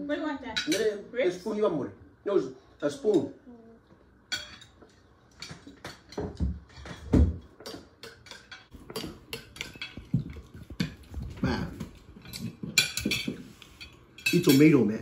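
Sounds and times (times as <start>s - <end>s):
cutlery clinking on glass: 4.3s - 14.9s.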